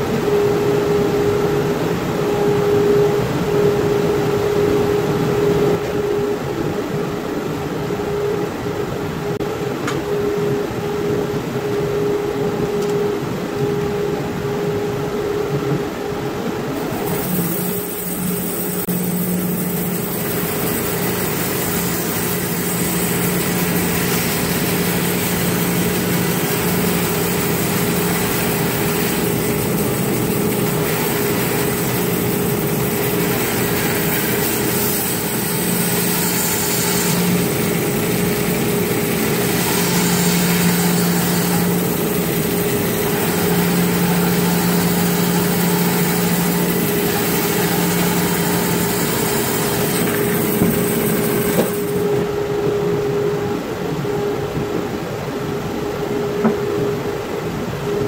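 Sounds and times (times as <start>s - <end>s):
bandsaw motor hum: 16.7s - 52.6s.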